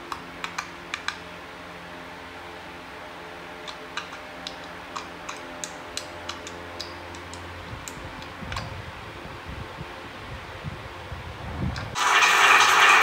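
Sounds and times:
low steady hum: 0.0 - 12.1.

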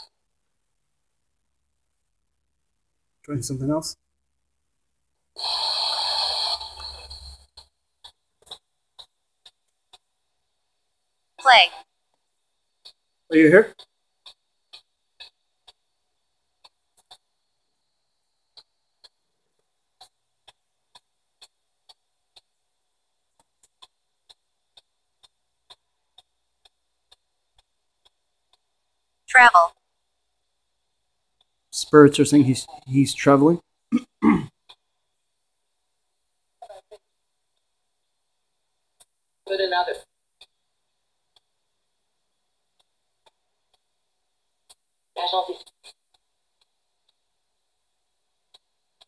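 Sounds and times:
choppy static blips: 0.0 - 10.2, 29.3 - 29.8, 41.3 - 49.0
faint evenly spaced clicks: 0.0 - 33.9, 34.5 - 49.0.

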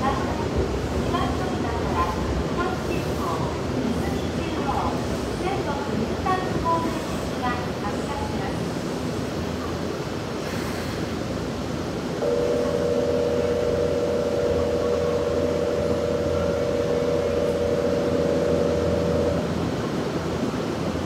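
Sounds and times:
station and train hum: 0.0 - 21.0
two-tone electronic departure buzzer: 12.2 - 19.5.

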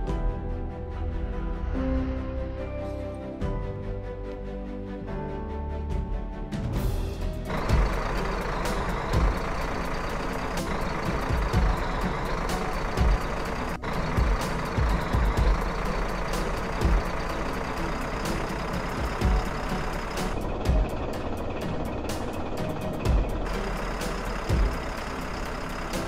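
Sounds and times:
diesel engines running under load: 6.8 - 26.0.

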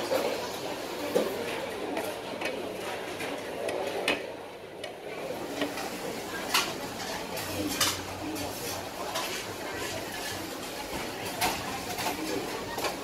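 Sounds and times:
background noise: 0.0 - 13.0
metal utensils and dishes clinking: 5.7 - 13.0.

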